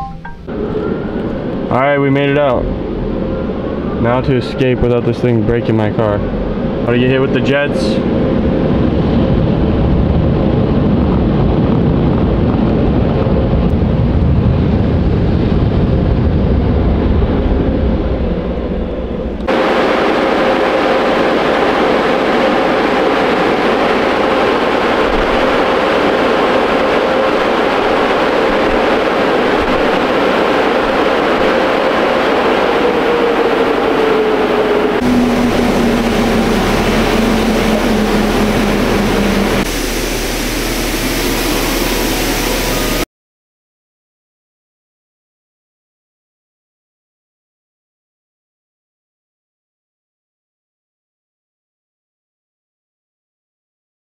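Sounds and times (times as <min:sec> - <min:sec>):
car wash machinery and spray: 0:00.0 - 0:43.0
machinery hum: 0:00.0 - 0:43.1.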